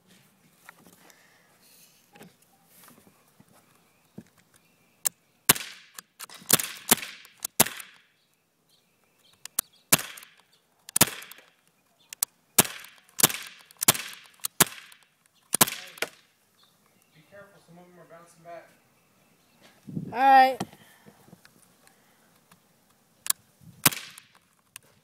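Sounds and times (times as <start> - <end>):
bb pistol shots: 5.5 - 8.1, 9.9 - 11.5, 12.6 - 16.2, 23.8 - 24.4.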